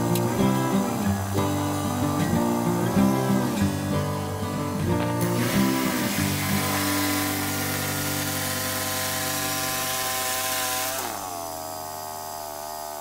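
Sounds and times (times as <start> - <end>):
bandsaw mill engine running: 0.0 - 13.0.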